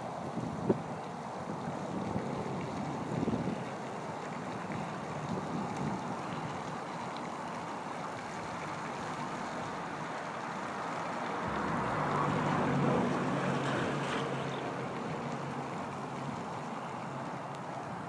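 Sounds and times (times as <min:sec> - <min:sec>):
wind buffeting microphone: 0:00.2 - 0:07.0, 0:11.3 - 0:16.8.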